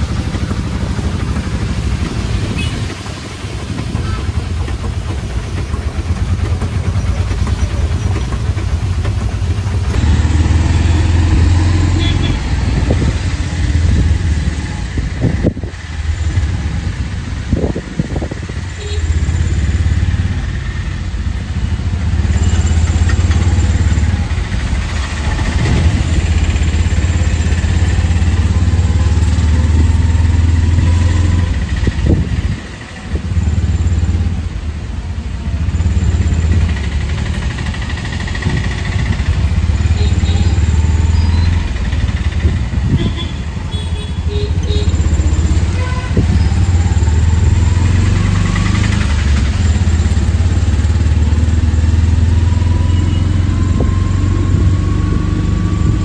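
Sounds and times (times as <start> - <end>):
auto-rickshaw engine drone: 0.0 - 56.0.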